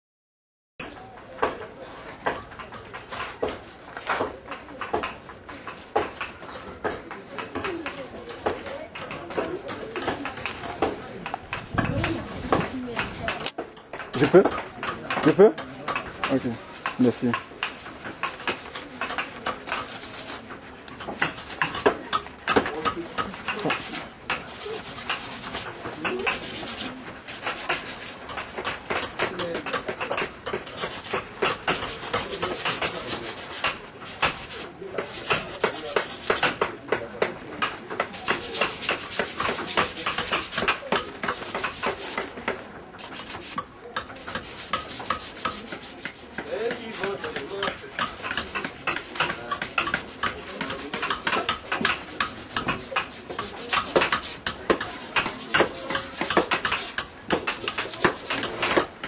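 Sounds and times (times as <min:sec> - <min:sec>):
rasp scraping wood: 0:01.4 - 0:59.0.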